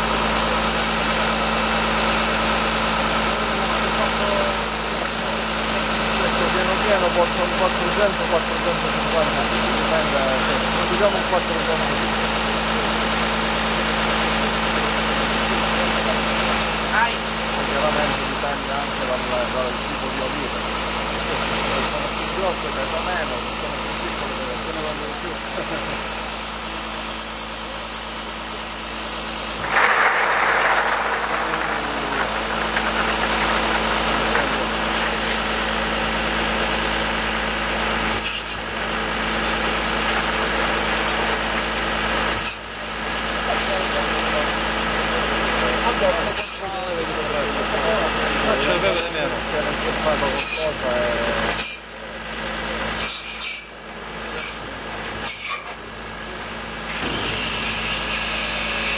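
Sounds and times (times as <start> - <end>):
harvesting machine running: 0.0 - 58.9
rasping mechanical noise: 0.0 - 58.9
machine low hum: 17.2 - 42.0.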